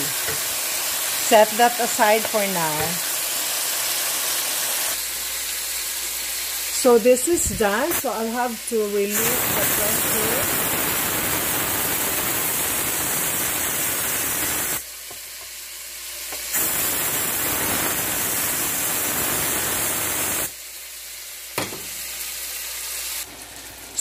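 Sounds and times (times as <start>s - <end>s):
pressure cooker steam hissing: 0.0s - 14.8s, 16.3s - 20.6s.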